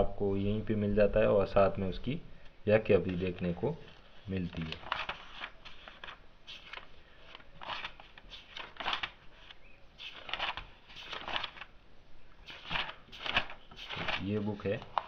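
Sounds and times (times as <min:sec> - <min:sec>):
book pages turning: 0:03.0 - 0:11.8, 0:12.4 - 0:15.0.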